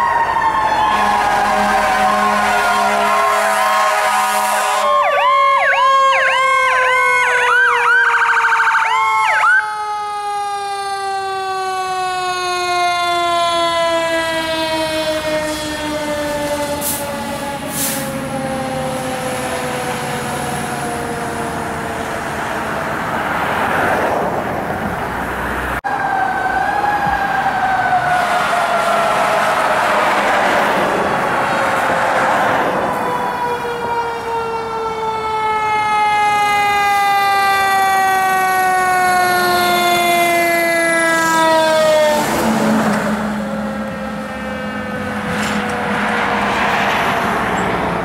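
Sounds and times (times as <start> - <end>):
electronic siren yelping: 0.0 - 19.6
long siren tone winding down: 0.0 - 23.7, 25.1 - 48.0
wail siren: 0.0 - 48.0.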